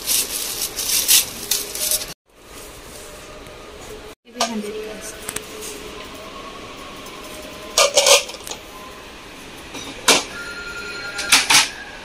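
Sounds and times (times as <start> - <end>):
shop background noise: 0.0 - 12.0
objects clattering: 7.7 - 8.6.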